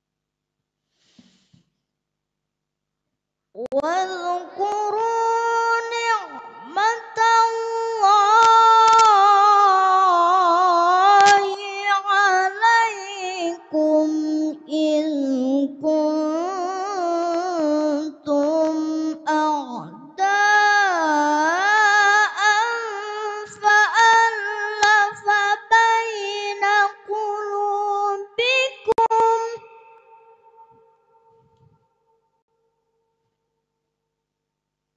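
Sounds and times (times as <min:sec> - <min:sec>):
boy reciting melodically into microphone: 0:03.6 - 0:31.0.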